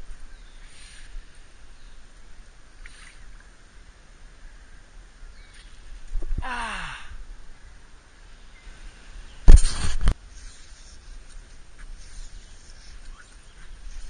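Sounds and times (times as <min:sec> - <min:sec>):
man crying out nooo: 0:06.4 - 0:07.2.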